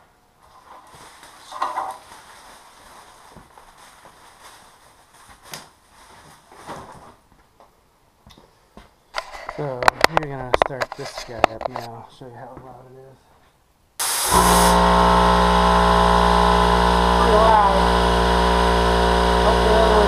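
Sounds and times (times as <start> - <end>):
shuffling and handling noise: 0.4 - 7.8, 8.4 - 13.6.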